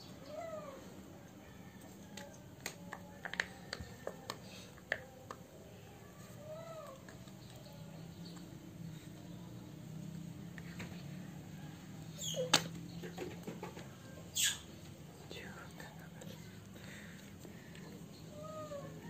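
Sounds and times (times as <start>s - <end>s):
baby monkey cooing: 12.2s - 12.6s.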